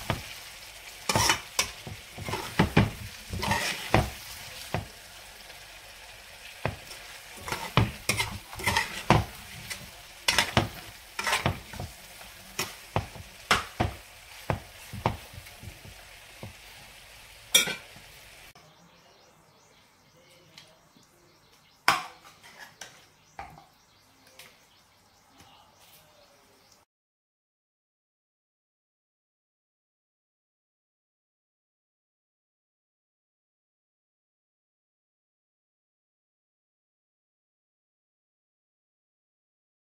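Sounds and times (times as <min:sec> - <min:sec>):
food sizzling: 0:00.0 - 0:18.6
metal spoon scraping a pan: 0:01.0 - 0:04.9, 0:06.5 - 0:16.9, 0:17.5 - 0:18.0, 0:21.9 - 0:23.7.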